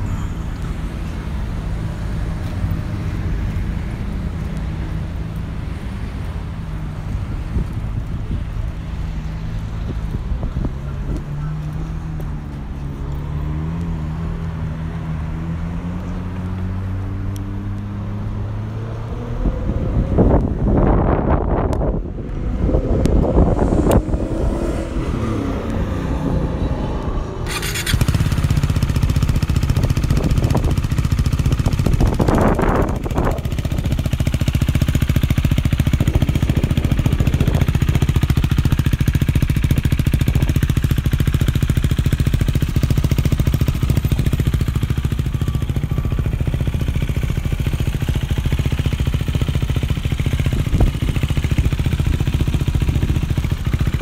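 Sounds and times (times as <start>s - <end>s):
motorcycle engine idling: 27.4s - 54.0s.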